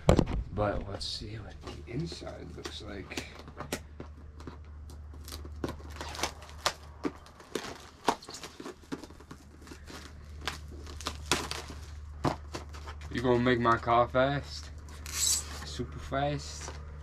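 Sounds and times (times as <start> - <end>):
cardboard box rustling and clicking: 2.0 - 13.2.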